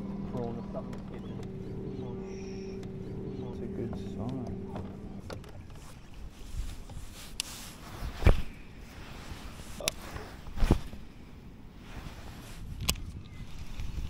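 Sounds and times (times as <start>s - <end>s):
knocks and thumps on a boat: 0.0s - 7.0s.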